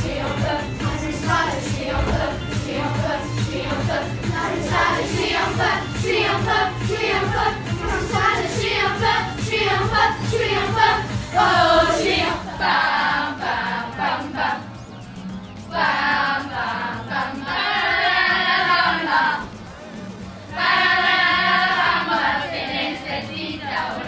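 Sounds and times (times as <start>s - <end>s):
children singing together: 0.0s - 14.8s, 15.7s - 19.6s, 20.5s - 24.0s
backing music: 0.0s - 24.0s.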